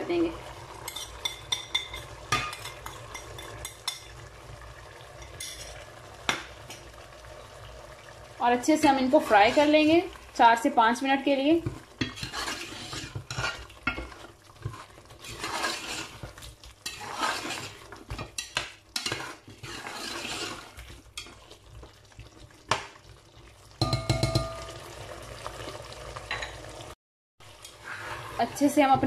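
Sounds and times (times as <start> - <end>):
meat sizzling in oil: 0.0 - 29.0
spatula scraping steel pot: 9.2 - 10.0, 12.0 - 21.7, 27.6 - 29.0.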